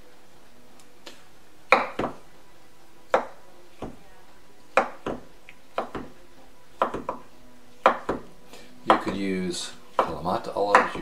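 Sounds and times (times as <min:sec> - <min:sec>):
knife chopping on wooden board: 0:01.1 - 0:02.2, 0:03.1 - 0:04.0, 0:04.7 - 0:06.2, 0:06.8 - 0:09.2, 0:09.9 - 0:11.0.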